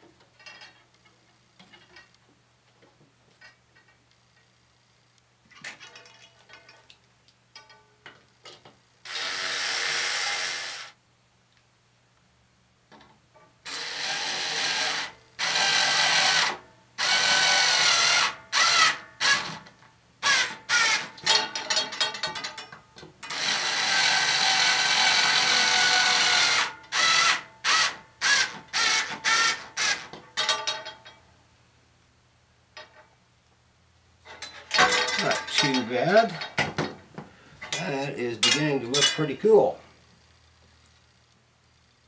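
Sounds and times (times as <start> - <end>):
cordless drill driving screws: 9.1 - 11.0, 13.7 - 19.6, 20.2 - 21.1, 23.3 - 30.1.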